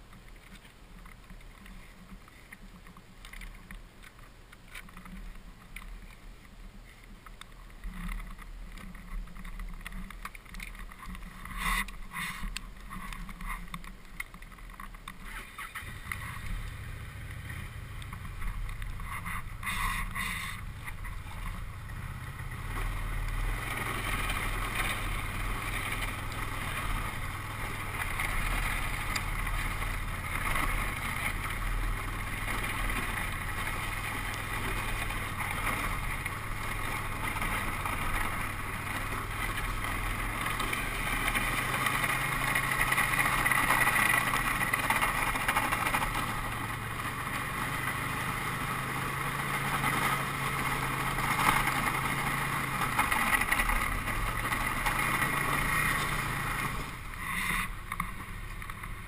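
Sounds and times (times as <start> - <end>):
snowmobile engine running: 4.9 - 59.0.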